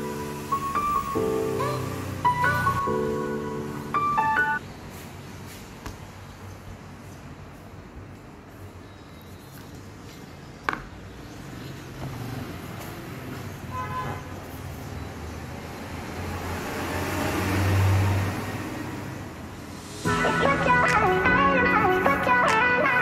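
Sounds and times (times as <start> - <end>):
vehicle passing: 0.0 - 4.6, 11.5 - 23.0.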